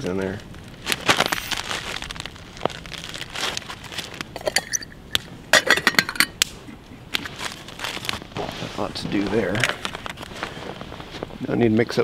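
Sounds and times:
metal lid clinking on pot: 5.6s - 6.4s.

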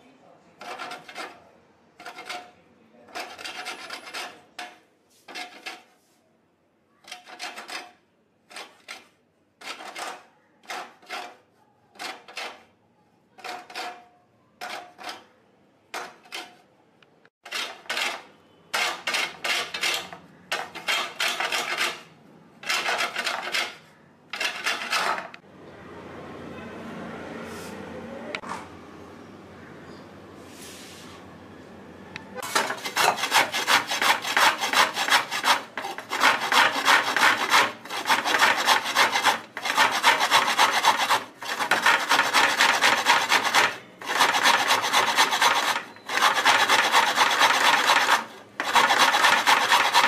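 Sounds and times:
coconut grated on metal grater: 0.6s - 4.7s, 5.3s - 5.9s, 7.1s - 12.7s, 13.4s - 15.3s, 17.4s - 25.4s, 32.4s - 50.0s.

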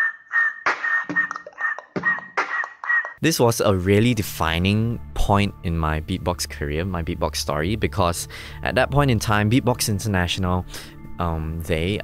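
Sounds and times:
beatboxing mouth percussion: 0.7s - 3.2s.

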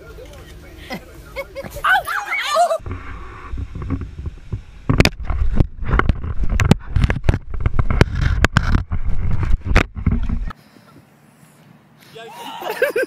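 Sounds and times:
microphone handling noise: 2.8s - 10.6s.

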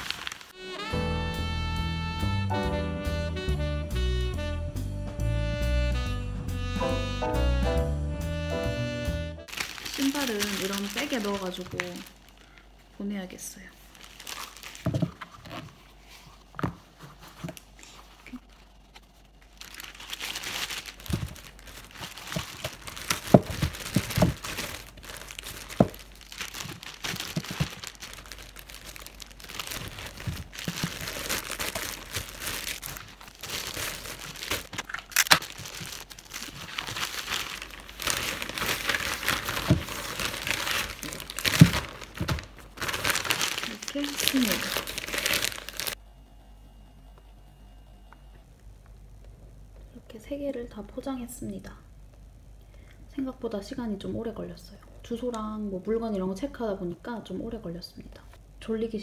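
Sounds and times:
plastic bag crinkling and rustling: 0.0s - 0.6s, 9.5s - 46.0s.

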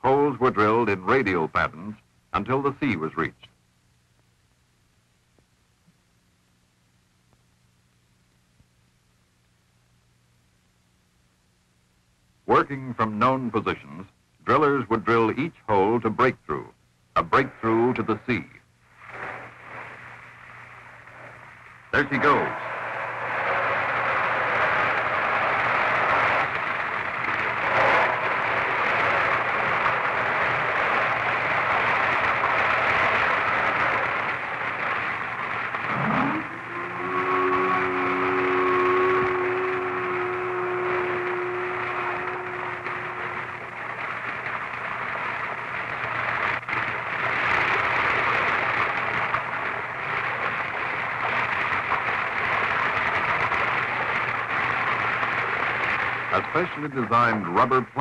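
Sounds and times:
low hum: 3.4s - 58.0s
seawater rushing out of drill hole: 21.0s - 43.8s.

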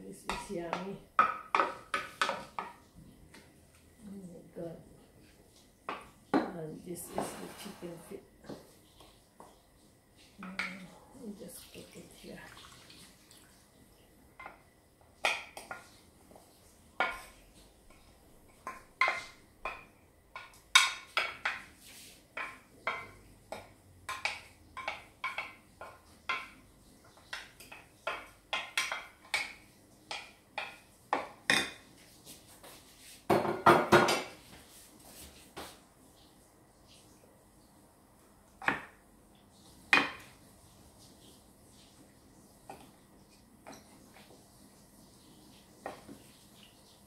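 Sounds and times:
wooden spoon knocking on glass bowl: 10.5s - 10.9s.

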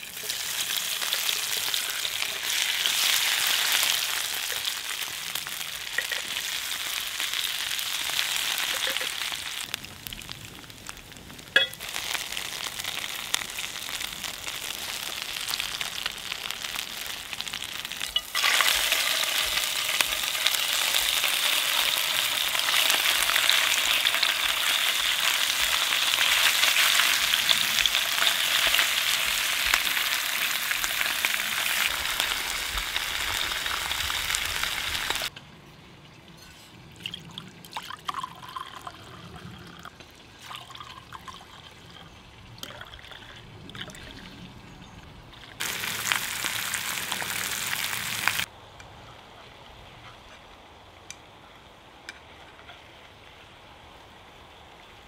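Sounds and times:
potatoes sizzling in oil: 0.0s - 35.3s, 45.6s - 48.5s.

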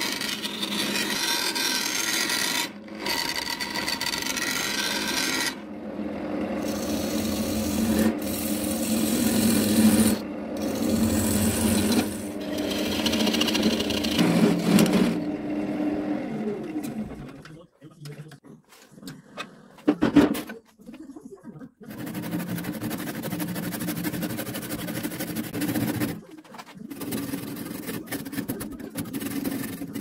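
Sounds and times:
tool scraping spinning wood: 0.0s - 5.7s, 6.4s - 15.9s, 21.9s - 30.0s
wood lathe humming: 0.0s - 17.2s.

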